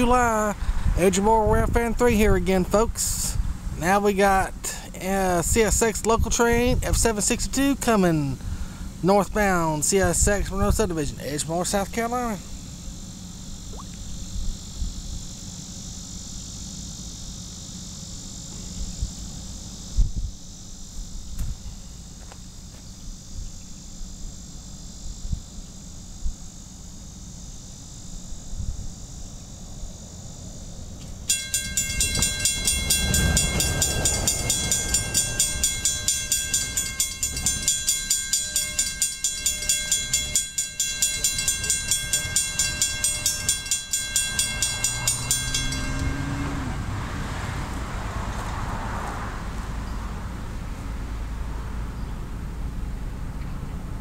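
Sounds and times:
wind gusts on microphone: 0.0s - 4.6s, 5.2s - 7.6s, 8.4s - 11.3s, 19.9s - 20.4s, 31.7s - 37.8s
high insect buzz: 11.2s - 51.0s
railroad crossing bell ringing: 31.2s - 47.5s.

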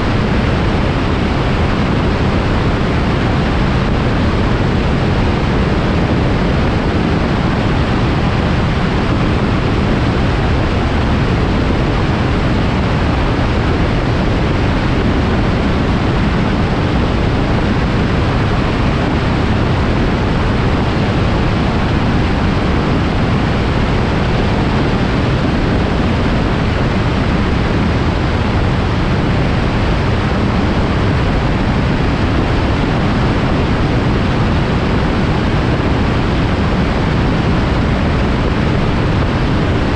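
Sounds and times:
aircraft engine and wind rush: 0.0s - 39.9s.

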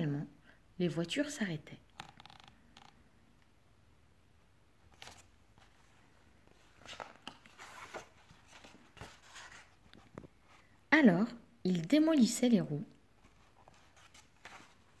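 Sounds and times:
book pages turning: 4.9s - 10.7s, 13.2s - 15.0s.

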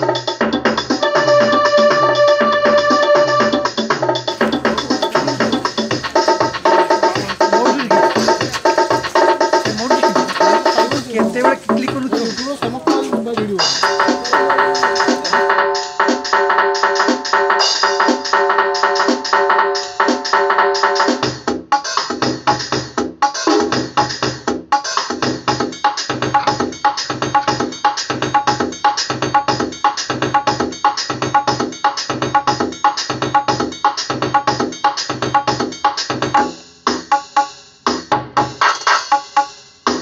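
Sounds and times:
synthesizer: 1.0s - 16.5s
electronic drum machine beat: 4.3s - 15.5s.

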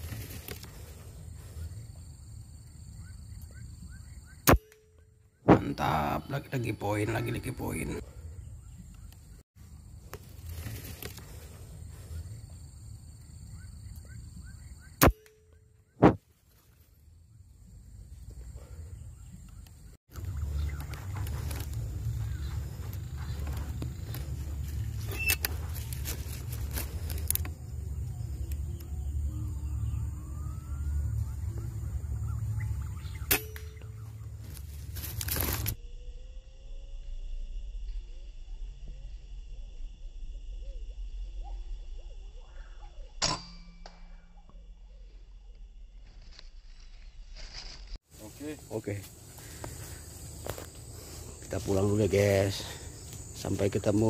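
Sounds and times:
steady low rumble: 17.0s - 43.2s
short bird chirps: 25.0s - 25.5s.

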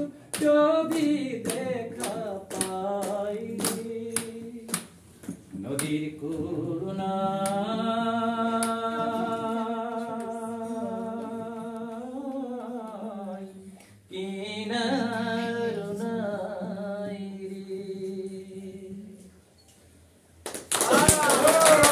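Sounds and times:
man singing unaccompanied: 0.0s - 4.9s, 5.6s - 19.2s.

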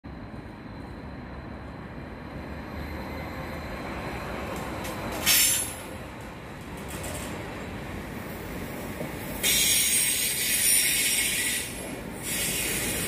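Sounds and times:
electric train rumble: 0.0s - 13.0s
loud hiss: 9.4s - 13.0s.

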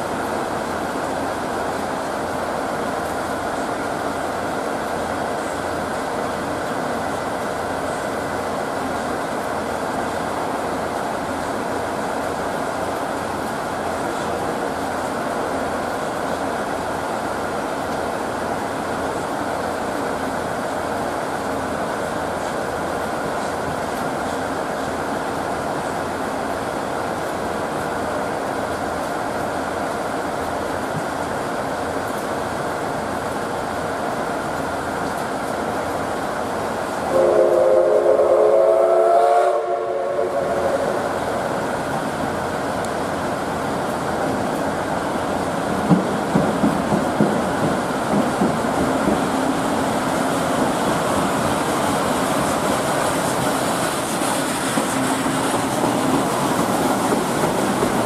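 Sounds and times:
steam locomotive rumble: 0.0s - 58.0s
steam locomotive whistle blast: 37.1s - 41.0s.

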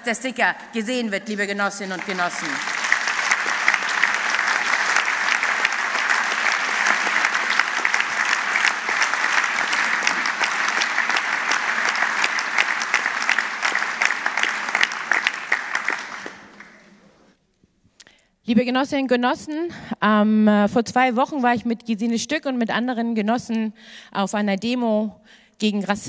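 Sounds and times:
audience applauding: 1.8s - 17.2s.

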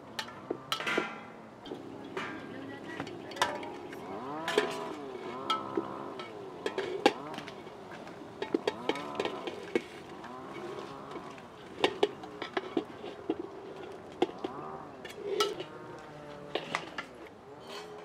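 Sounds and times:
metal spoon scraping pot: 0.2s - 18.0s.

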